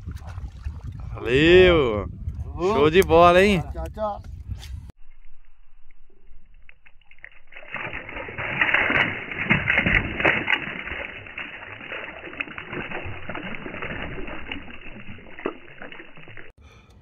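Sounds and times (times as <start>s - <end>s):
water splashing and rushing: 0.0s - 1.8s, 6.9s - 16.6s.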